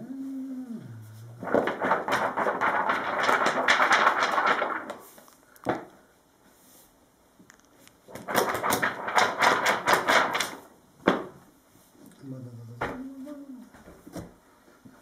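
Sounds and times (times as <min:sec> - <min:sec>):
paper leaves rustling: 0:01.4 - 0:05.4.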